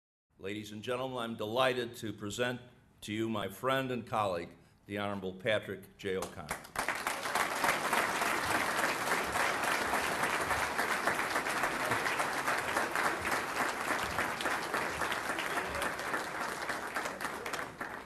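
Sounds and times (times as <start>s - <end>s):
audience applauding: 6.5s - 18.0s.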